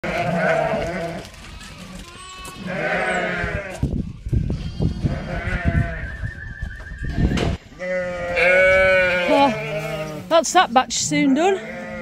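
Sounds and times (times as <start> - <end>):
sheep bleating: 0.0 - 3.9, 4.5 - 6.1, 7.8 - 10.3, 11.1 - 12.0.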